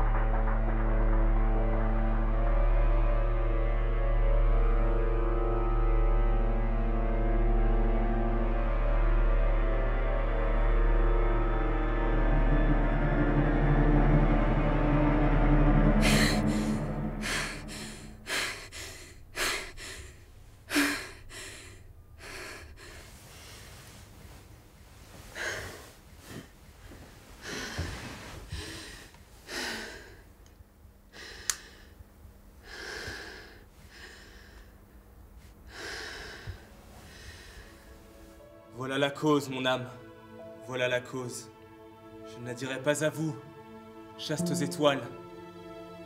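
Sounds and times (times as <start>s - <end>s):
music: 0.0s - 24.5s, 35.7s - 46.0s
woman gasping for breath: 16.0s - 23.7s, 27.4s - 30.3s.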